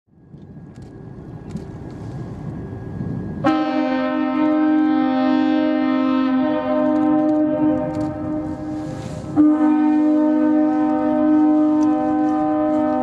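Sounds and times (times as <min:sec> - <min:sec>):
ship's horn blast: 0:03.4 - 0:13.0.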